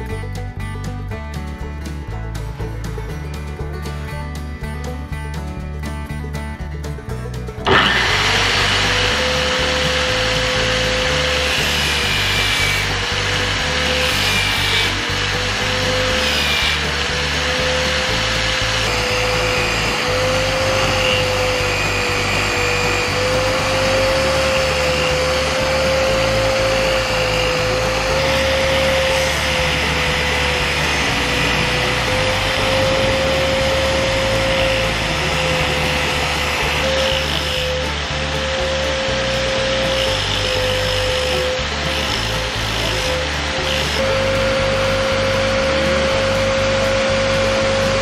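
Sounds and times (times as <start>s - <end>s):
background music with bass line: 0.0s - 48.0s
power tool polishing steel: 7.7s - 48.0s.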